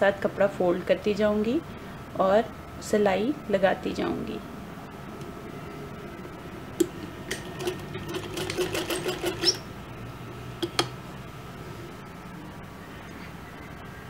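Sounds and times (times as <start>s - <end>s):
sewing machine clicking: 7.3s - 9.6s.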